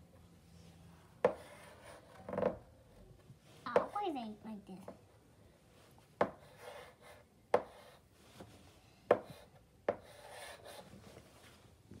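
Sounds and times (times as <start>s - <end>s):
chalk tapping on blackboard: 1.2s - 2.6s, 3.7s - 4.0s, 6.2s - 8.5s, 9.1s - 10.9s
chalk scratching on slate: 9.3s - 10.9s.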